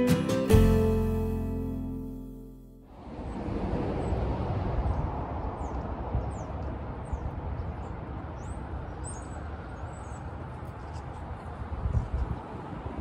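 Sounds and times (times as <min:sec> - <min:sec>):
wind buffeting microphone: 0:03.0 - 0:13.0.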